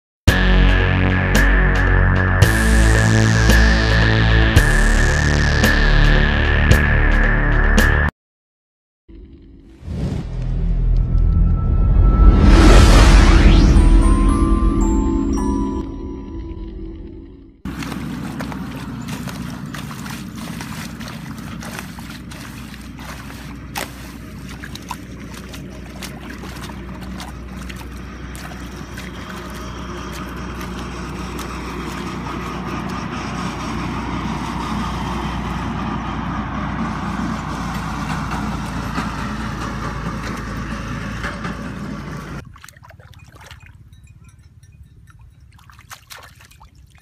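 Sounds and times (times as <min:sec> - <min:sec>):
hoe chopping into wet mud: 0:17.7 - 0:29.2
muddy water sloshing: 0:17.7 - 0:47.0.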